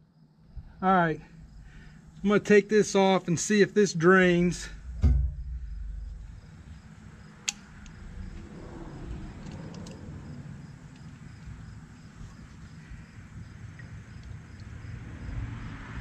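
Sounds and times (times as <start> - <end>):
low steady rumble: 0.3 - 3.3, 4.0 - 15.1
faint ticks: 13.7 - 14.8.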